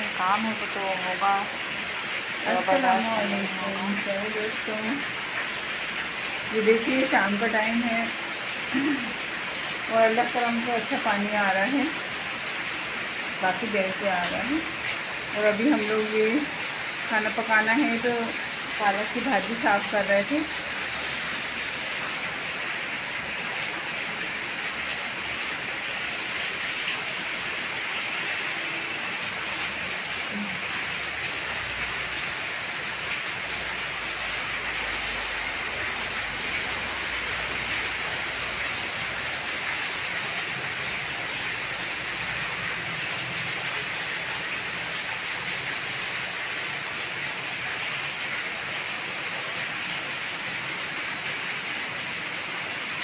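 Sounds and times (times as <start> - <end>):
heavy rain pouring: 0.0 - 53.0.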